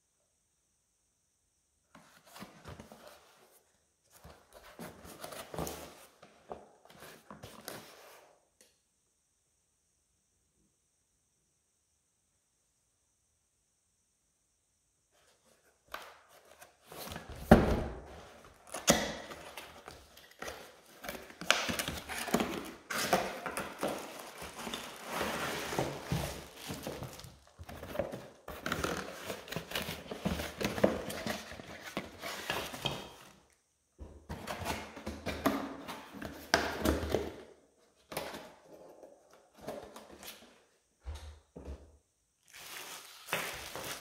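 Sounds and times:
cardboard scraping and knocking: 16.8 - 33.3
plastic wrapping rustling: 18.3 - 33.2, 42.4 - 44.0.

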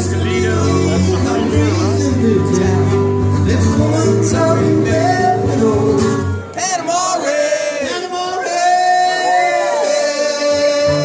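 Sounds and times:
acoustic guitar strumming: 0.0 - 7.1.

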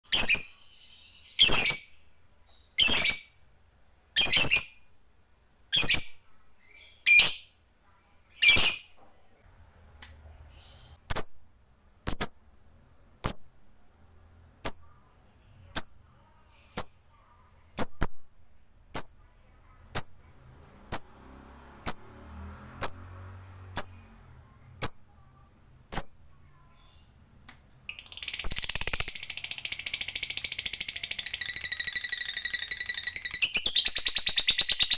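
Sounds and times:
lovebird chattering trill: 0.1 - 3.4, 4.2 - 4.9, 27.9 - 34.9
lovebird chirping: 0.1 - 3.5, 4.1 - 5.0, 5.7 - 9.0, 10.4 - 22.2, 22.8 - 27.2, 27.8 - 34.9.

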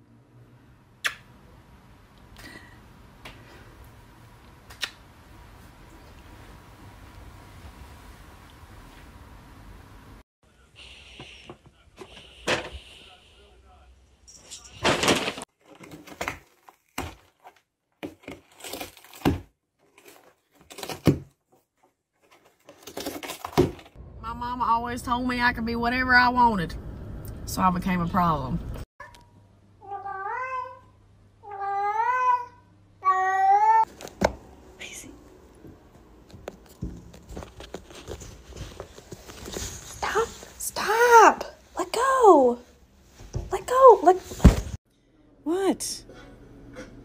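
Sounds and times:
lip smacking kisses: 1.0 - 1.3, 4.7 - 5.0
cardboard box rustling: 22.2 - 24.0, 36.5 - 40.5.

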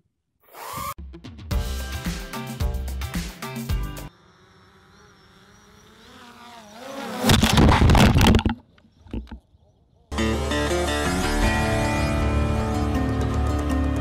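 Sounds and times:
drone propellers buzzing: 4.0 - 8.0
drone crashing into grass: 7.1 - 8.6.

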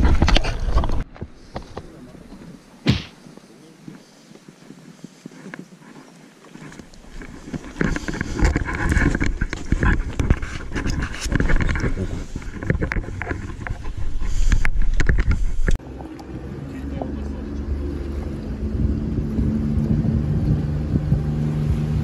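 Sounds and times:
wind buffeting microphone: 17.0 - 22.0.

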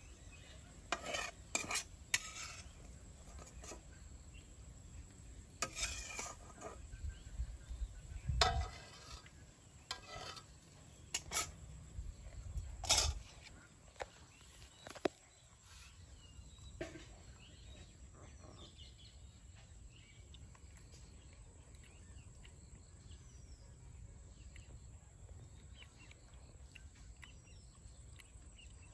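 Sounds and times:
faint bird chirps: 0.0 - 28.9.

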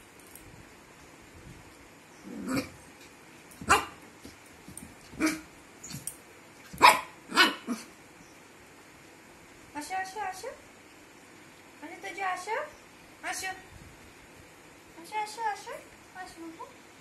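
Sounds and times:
puppy yapping: 3.6 - 4.0, 6.7 - 7.9.

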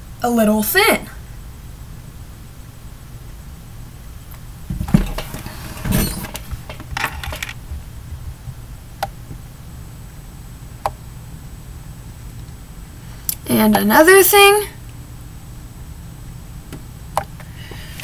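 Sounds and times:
handling rustling and knocking: 4.6 - 9.5.

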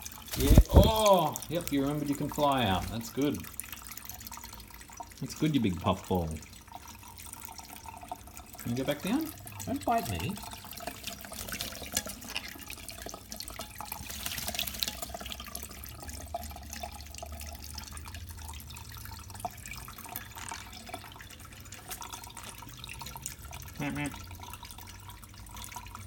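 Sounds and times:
bird splashing in water: 0.0 - 1.5, 10.3 - 15.7
tap water running into sink: 0.0 - 26.0.

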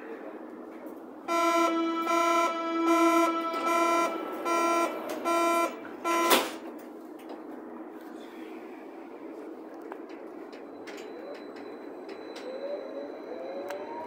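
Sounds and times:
electronic door warning beeps: 1.3 - 6.6.

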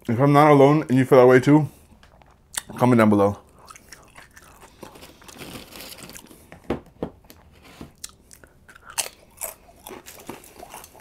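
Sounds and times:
aluminum foil crinkling: 4.6 - 6.4.

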